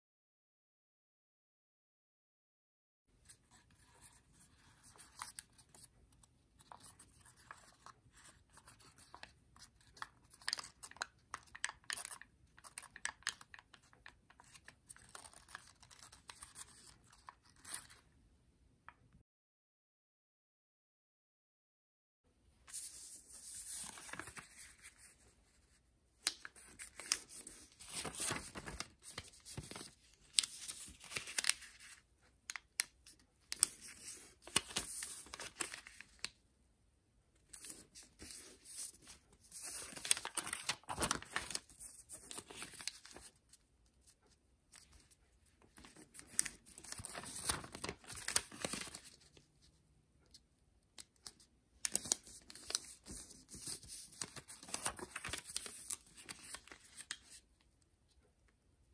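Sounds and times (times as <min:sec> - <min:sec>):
paper rustling as folded: 0:03.3 - 0:18.0, 0:22.7 - 0:36.3, 0:37.4 - 0:49.7, 0:51.2 - 0:57.4.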